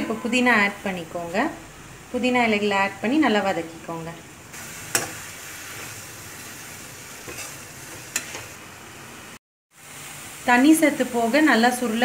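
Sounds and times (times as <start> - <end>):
leaves sizzling in oil: 4.5 - 12.0.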